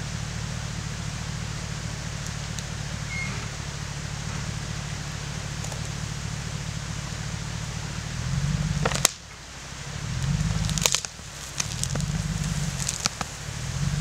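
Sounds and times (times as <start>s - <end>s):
engine surging: 0.0s - 14.0s
branches cracking: 4.2s - 6.1s, 8.7s - 9.4s, 10.0s - 13.7s.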